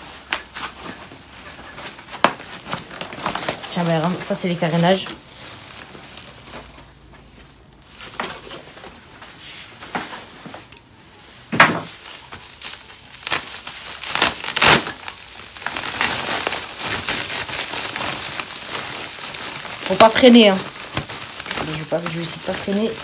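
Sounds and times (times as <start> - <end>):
packaging crinkling and rustling: 0.0 - 23.0.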